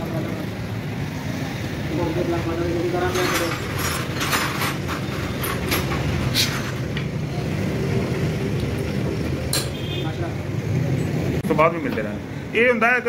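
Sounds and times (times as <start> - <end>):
rag rubbing metal parts: 2.9 - 6.9.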